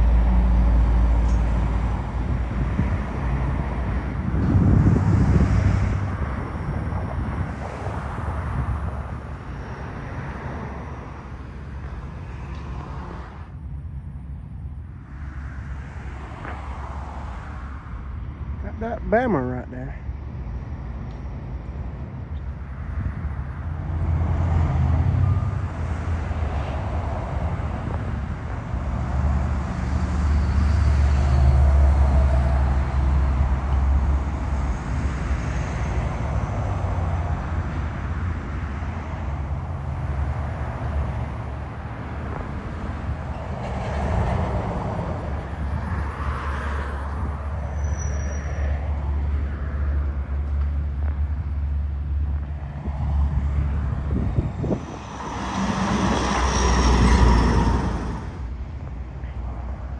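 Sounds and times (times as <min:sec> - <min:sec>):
trucks and cars passing: 0:00.0 - 0:59.9
brief high squeak: 0:47.7 - 0:48.7, 0:55.2 - 0:58.5.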